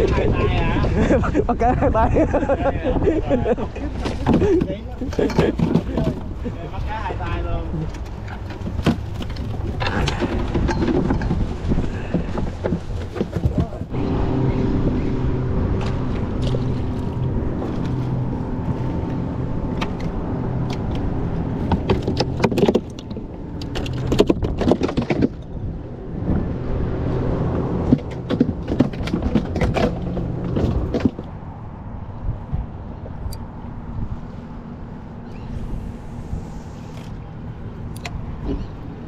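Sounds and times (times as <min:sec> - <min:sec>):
engine hum: 0:00.0 - 0:39.0
sharp knocks and clatter: 0:04.0 - 0:06.4, 0:07.9 - 0:14.0, 0:21.6 - 0:25.6, 0:27.8 - 0:31.3.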